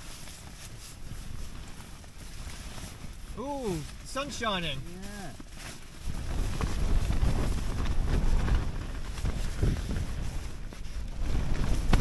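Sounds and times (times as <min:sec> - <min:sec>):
wind buffeting microphone: 0:04.9 - 0:12.0.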